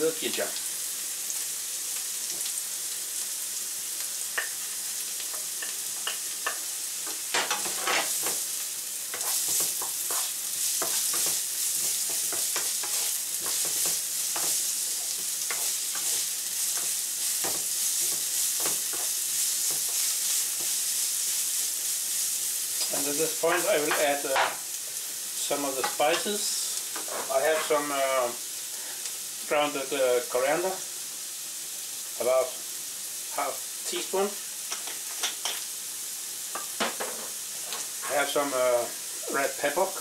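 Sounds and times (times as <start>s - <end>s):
vegetables sizzling in oil: 0.0s - 40.0s
wooden spatula scraping pan: 9.2s - 20.8s, 27.0s - 27.8s, 36.9s - 38.3s.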